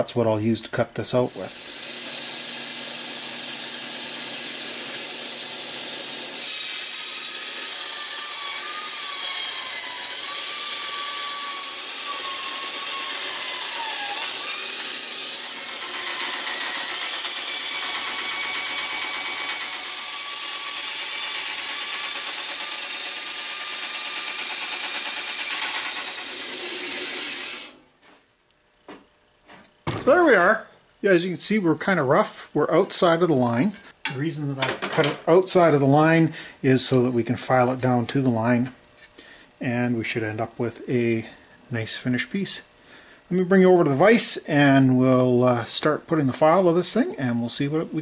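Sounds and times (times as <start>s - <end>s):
bandsaw cutting metal: 1.2s - 27.8s.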